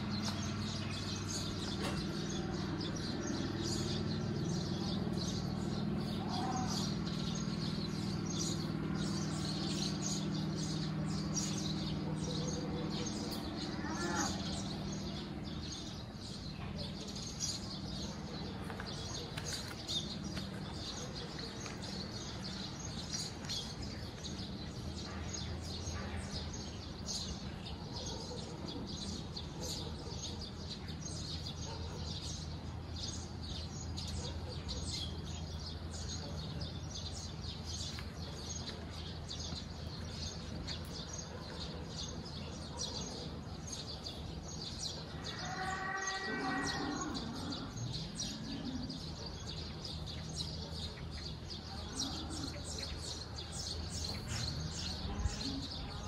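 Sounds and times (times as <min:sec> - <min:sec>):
songbirds chirping: 0:00.0 - 0:56.0
loud pitched bird call: 0:45.2 - 0:47.8.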